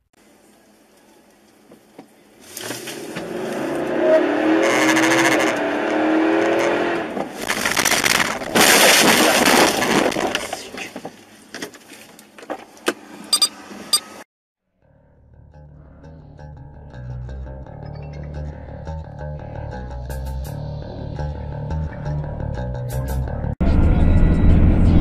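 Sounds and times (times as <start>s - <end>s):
loud rush with wavering whine: 23.6s - 25.0s.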